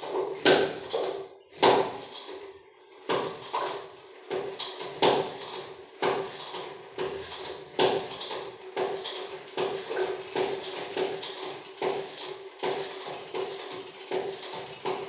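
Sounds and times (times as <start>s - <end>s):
knocks: 3.0s - 15.0s.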